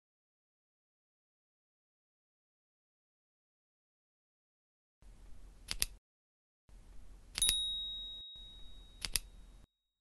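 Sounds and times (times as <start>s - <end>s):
mouse double-click: 5.6s - 6.0s, 9.0s - 9.4s
bell ding: 7.4s - 9.5s.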